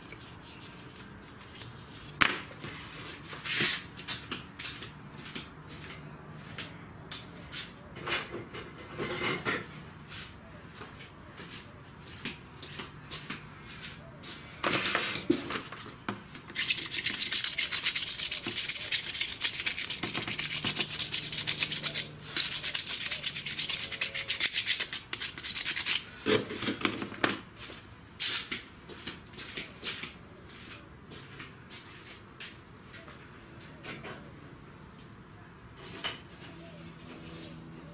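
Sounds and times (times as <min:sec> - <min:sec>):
disc scrubbing on plastic: 0:16.5 - 0:26.0.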